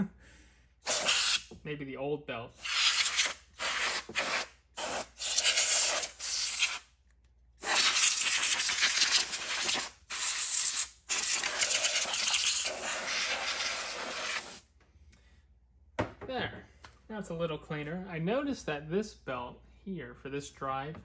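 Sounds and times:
compressed air hissing: 0.8 - 1.5, 2.6 - 6.8, 7.6 - 14.6.

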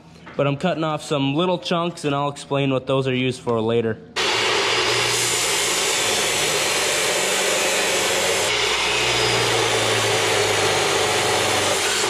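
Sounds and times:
chop saw grinding through steel pipe: 4.2 - 12.0.

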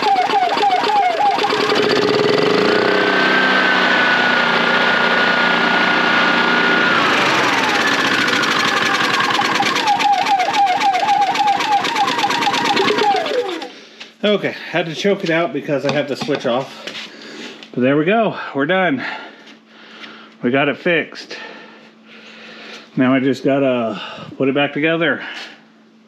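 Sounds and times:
generator engine running: 0.0 - 16.9.

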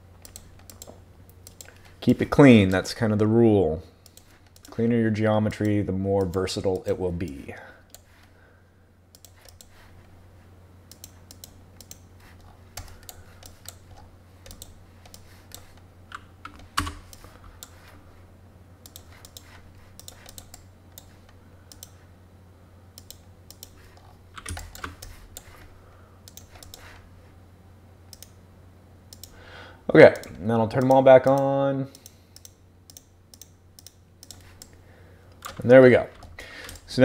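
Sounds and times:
low steady hum: 0.0 - 37.0
keyboard keys and mouse clicking: 0.2 - 1.9, 4.0 - 4.8, 9.1 - 9.9, 10.9 - 17.8, 18.8 - 22.0, 23.0 - 25.6, 26.3 - 27.0, 28.1 - 28.4, 29.1 - 29.4, 30.2 - 34.8.

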